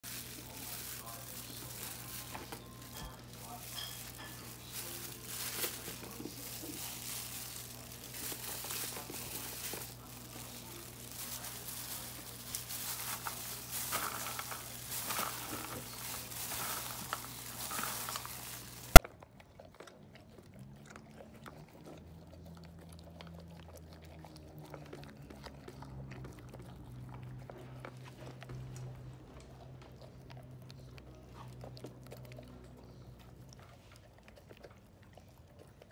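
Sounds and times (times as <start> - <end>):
plastic glove crinkling: 0.0 - 19.0
dog chewing from a metal bowl: 0.0 - 35.9
kibble crunching: 0.0 - 35.9.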